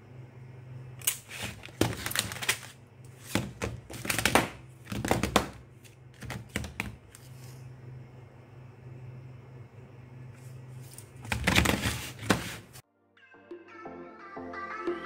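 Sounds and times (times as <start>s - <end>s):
plastic battery packs clattering: 1.2s - 5.6s, 6.2s - 7.0s, 11.2s - 12.7s.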